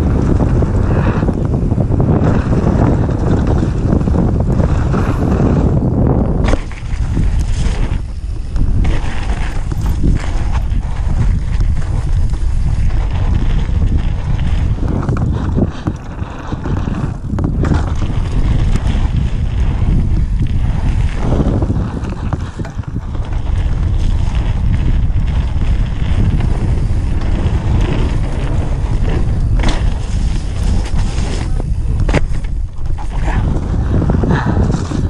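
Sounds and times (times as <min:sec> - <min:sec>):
bike rattling: 0:00.0 - 0:35.0
tyres rumbling on dirt: 0:00.0 - 0:35.0
wind buffeting microphone: 0:00.0 - 0:35.0.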